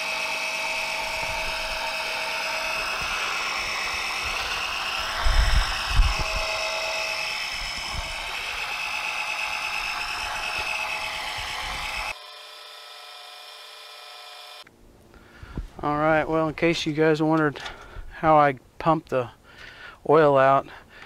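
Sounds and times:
electric pump whining: 0.0s - 14.7s.

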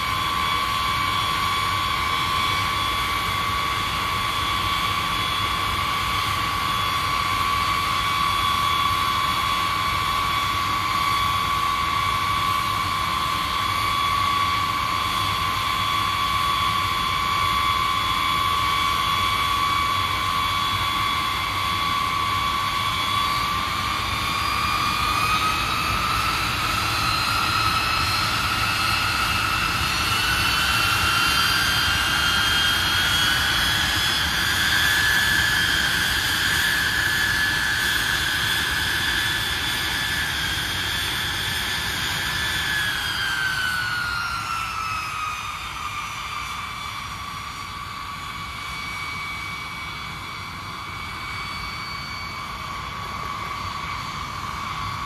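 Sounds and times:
jet engines whining: 0.0s - 55.0s.

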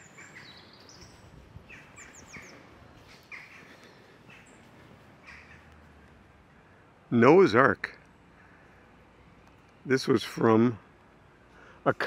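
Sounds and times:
small birds chirping: 0.0s - 6.9s.

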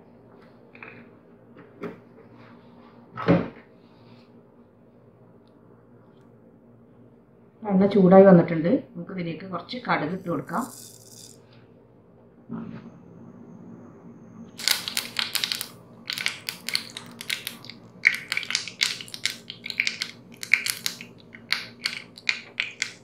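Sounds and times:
mustard seeds popping and crackling: 14.6s - 23.0s
oil sizzling: 14.6s - 23.0s.

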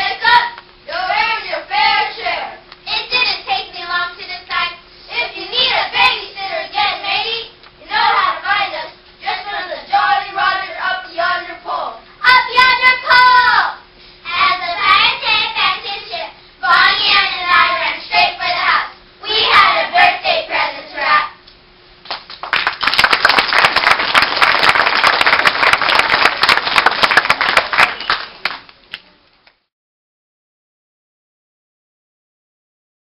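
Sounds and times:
audience applauding: 22.1s - 29.0s.

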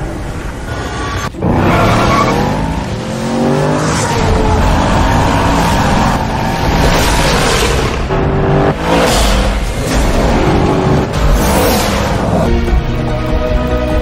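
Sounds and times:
car engine revving hard: 1.4s - 12.4s.

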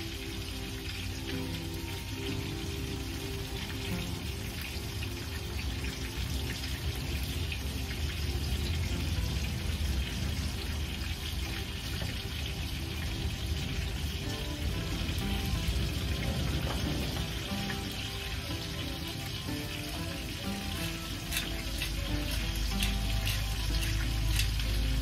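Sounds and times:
chicken sizzling in a skillet: 0.0s - 25.0s.

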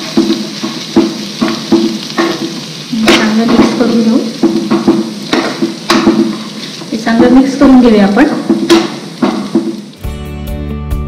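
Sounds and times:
spoon knocking against pan: 0.0s - 9.9s.

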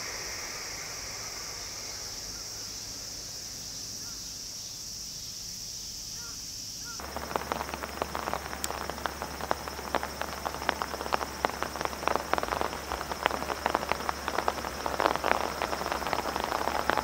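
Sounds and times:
rain hiss: 0.0s - 17.0s
raindrops tapping near microphone: 7.0s - 17.0s.

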